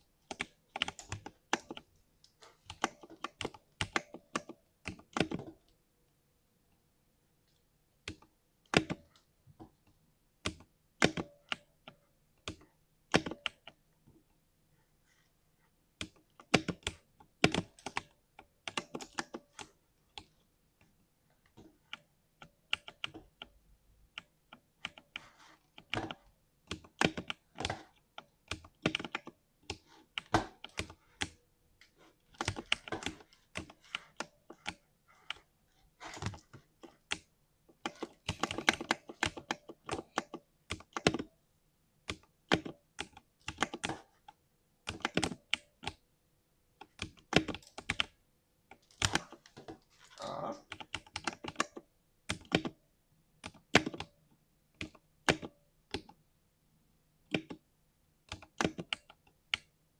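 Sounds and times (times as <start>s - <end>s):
mechanical keyboard typing: 0.2s - 1.9s, 2.6s - 5.6s, 8.0s - 9.2s, 10.4s - 13.8s, 16.0s - 20.3s, 21.9s - 23.5s, 24.1s - 31.4s, 32.3s - 35.4s, 36.0s - 41.3s, 42.0s - 46.0s, 46.8s - 49.5s, 50.6s - 52.8s, 53.4s - 54.1s, 54.8s - 56.2s, 57.3s - 57.6s, 58.2s - 59.7s.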